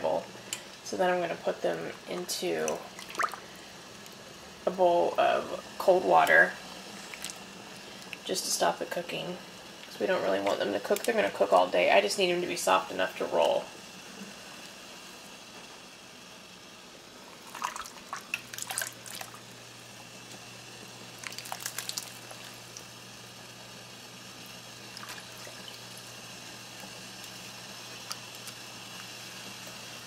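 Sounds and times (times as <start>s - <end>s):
water splashing and dripping: 2.7s - 3.4s, 17.4s - 19.4s, 21.2s - 22.8s, 24.9s - 26.0s.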